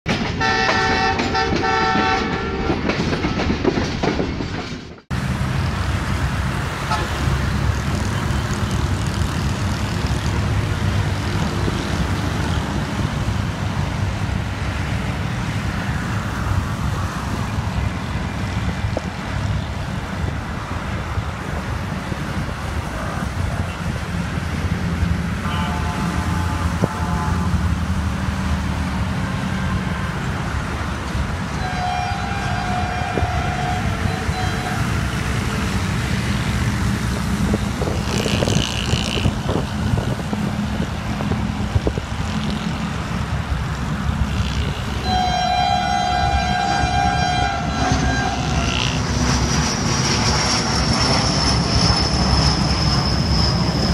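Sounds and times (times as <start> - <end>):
distant locomotive horn: 0.4 - 2.8, 6.8 - 7.3, 25.4 - 27.8, 31.5 - 35.8, 44.3 - 49.5
wind rumble on microphone: 7.5 - 25.4, 29.0 - 45.0.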